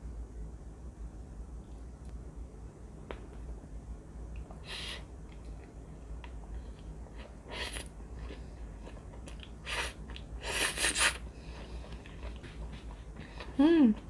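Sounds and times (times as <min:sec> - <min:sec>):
chewing: 0:05.2 - 0:10.4, 0:11.4 - 0:14.0
noodle slurping: 0:09.6 - 0:12.9.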